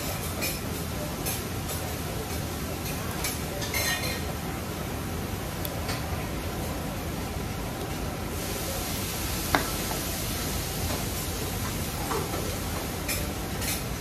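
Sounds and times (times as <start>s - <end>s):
tableware clink: 3.6s - 4.3s
eatery background hiss: 7.8s - 14.0s.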